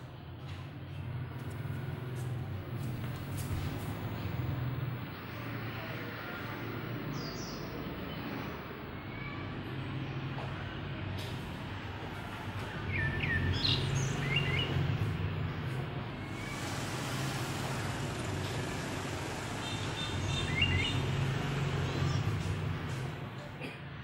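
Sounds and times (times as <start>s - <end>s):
birds chirping: 1.0s - 10.4s, 12.7s - 23.3s
low background rumble: 2.4s - 9.7s.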